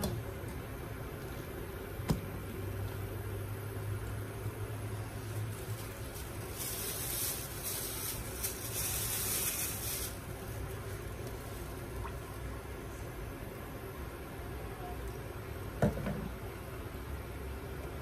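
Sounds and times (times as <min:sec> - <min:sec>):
steady low hum: 0:00.0 - 0:08.7, 0:10.1 - 0:18.0.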